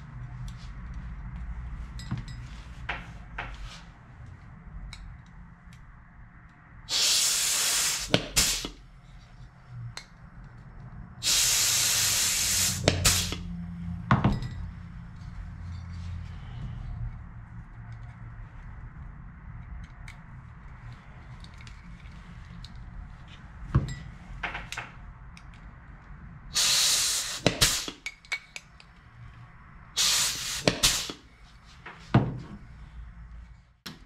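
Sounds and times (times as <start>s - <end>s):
compressed air hiss: 6.9s - 8.8s, 11.2s - 13.5s, 26.5s - 28.0s, 30.0s - 31.2s.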